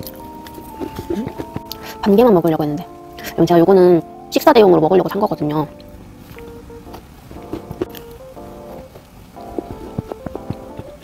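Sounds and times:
background music with held notes: 0.0 - 11.0
cookie crunching: 5.8 - 11.0.

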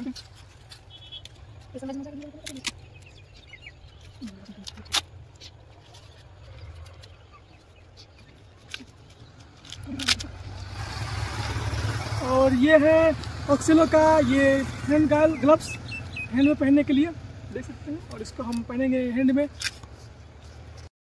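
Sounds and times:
pads and straps clicking: 0.0 - 10.6, 19.5 - 20.9
motor vehicle rumble: 0.0 - 20.9.

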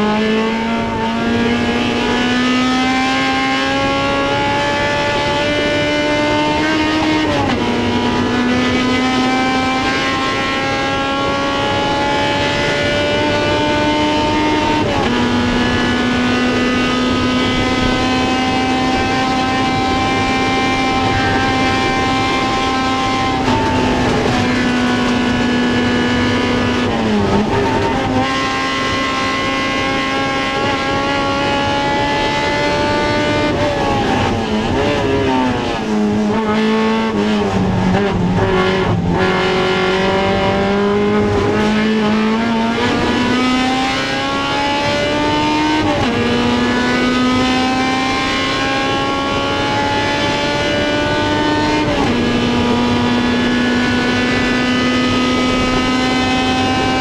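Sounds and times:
race car engine running hard: 0.0 - 57.0.

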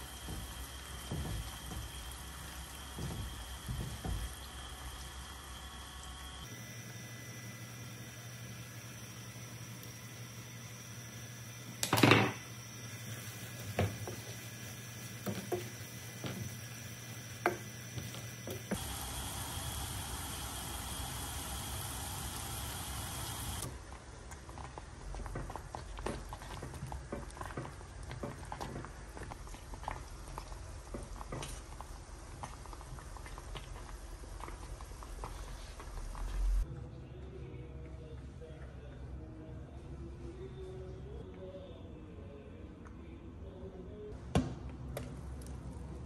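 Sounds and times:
wooden spoon stirring in pan: 0.0 - 5.3, 13.0 - 19.0, 23.7 - 36.6
thick porridge plopping when stirred: 23.8 - 35.9.

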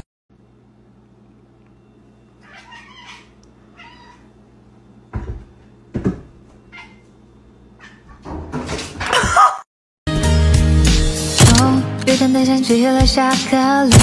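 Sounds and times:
cat meowing: 2.4 - 4.3.

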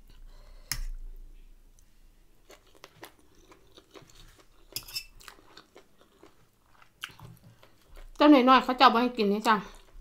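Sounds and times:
close-up chewing: 2.4 - 8.2.

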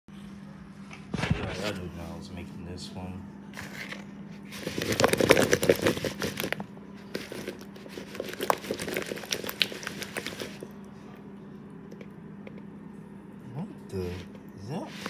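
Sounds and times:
potato cubes rattling in plastic bowl: 4.6 - 6.6, 7.2 - 10.6.

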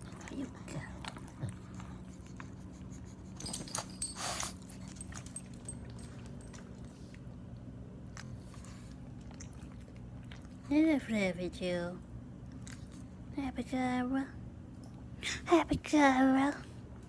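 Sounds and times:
dogs licking and sniffing: 0.0 - 11.3.

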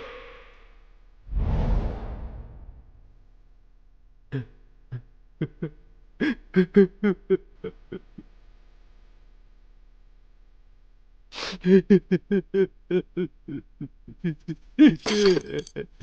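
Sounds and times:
person making non-word sounds: 11.4 - 15.8.

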